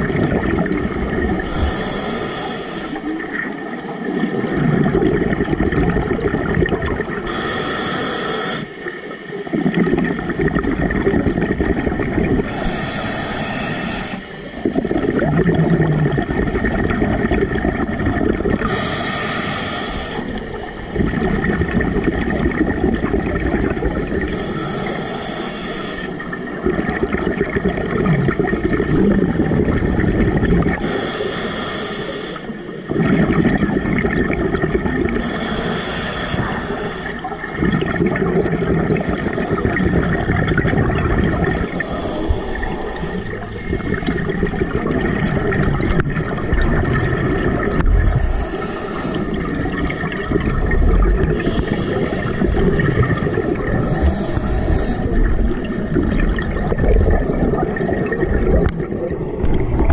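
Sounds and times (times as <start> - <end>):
exhaled bubbles: 0.0 - 7.7, 8.5 - 31.2, 32.4 - 59.9
regulator inhalation hiss: 1.4 - 3.2, 7.3 - 8.8, 12.5 - 14.4, 18.6 - 20.4, 24.3 - 26.2, 30.8 - 32.6, 35.2 - 37.4, 41.6 - 44.4, 48.0 - 49.5, 51.4 - 52.6, 53.8 - 55.2.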